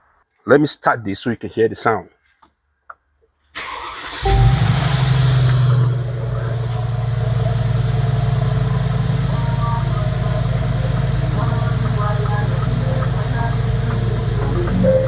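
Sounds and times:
car engine revving then idling: 4.0s - 15.0s.

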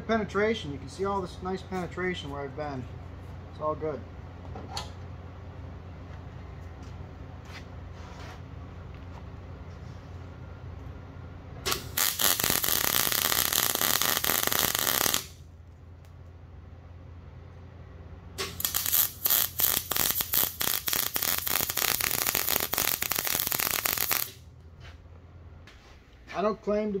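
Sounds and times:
steady low hum: 0.0s - 27.0s
welder arc crackling: 11.7s - 15.4s, 18.4s - 24.4s.

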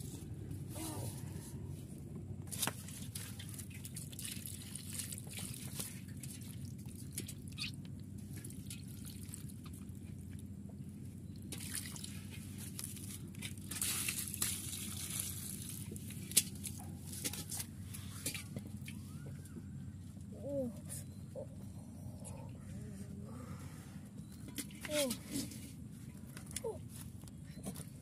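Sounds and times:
water pouring and splashing: 2.5s - 9.8s, 11.5s - 18.4s.

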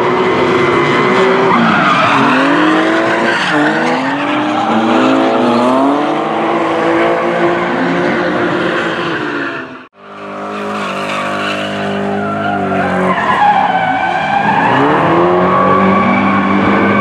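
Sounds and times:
car engines revving: 0.0s - 17.0s
tyres screeching: 0.8s - 6.8s, 10.4s - 17.0s.

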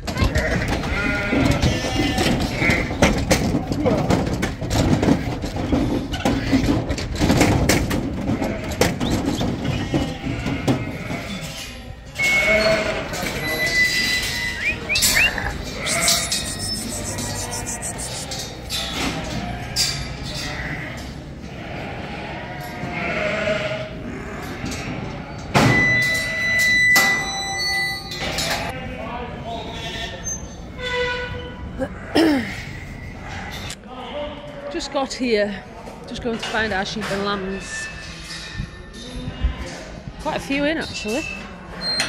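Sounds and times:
sheep bleating: 0.2s - 3.0s, 12.2s - 25.4s
steady high tone: 14.5s - 18.3s.

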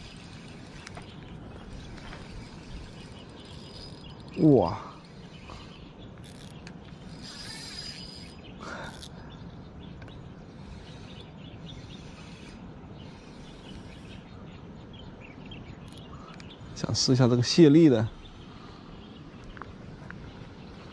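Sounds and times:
fishing reel cranking: 0.0s - 9.1s, 10.5s - 14.2s
birds chirping: 0.0s - 20.9s
insects chirping: 0.0s - 20.9s.

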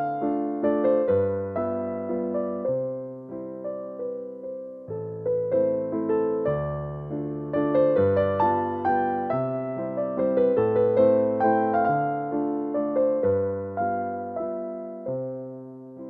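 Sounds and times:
piano notes: 0.0s - 16.0s.

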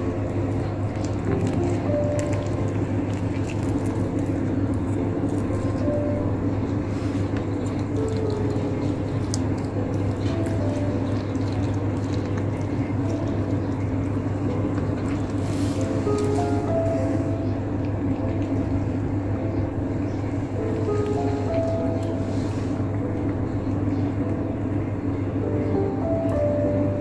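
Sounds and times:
steady low hum: 0.0s - 27.0s
cat chewing with crunching clicks: 0.9s - 5.9s, 6.6s - 16.3s.

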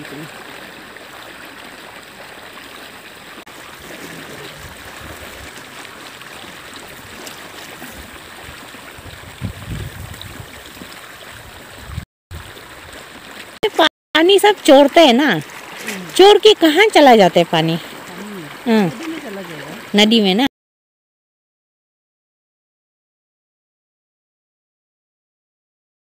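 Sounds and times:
water trickling through drain: 0.0s - 20.3s
hands sloshing in muddy water: 3.5s - 11.8s, 15.3s - 16.3s.

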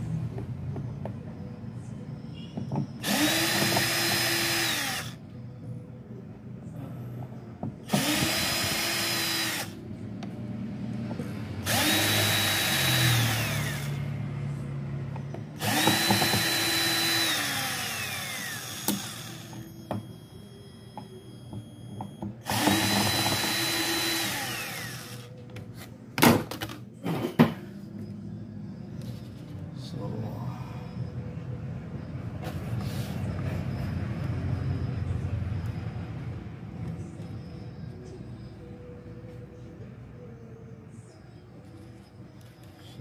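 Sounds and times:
electric screwdriver motor whining: 3.0s - 5.2s, 7.9s - 9.8s, 11.7s - 14.0s, 15.6s - 19.6s, 22.4s - 25.3s.

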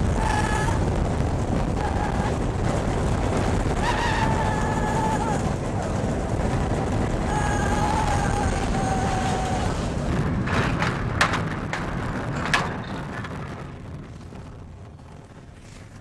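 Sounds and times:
riders yelling: 0.0s - 0.9s, 3.8s - 5.6s, 7.2s - 9.8s
roller coaster rumbling on track: 0.0s - 16.0s
roller coaster train clacks: 0.0s - 16.0s
rushing wind: 0.0s - 16.0s.

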